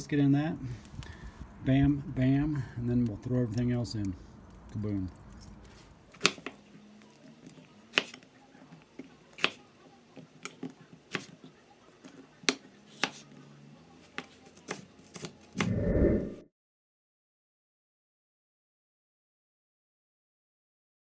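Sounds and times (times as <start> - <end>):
knife chopping on cutting board: 6.1 - 6.6, 7.9 - 8.2, 9.0 - 9.6, 10.4 - 11.4, 12.4 - 13.3.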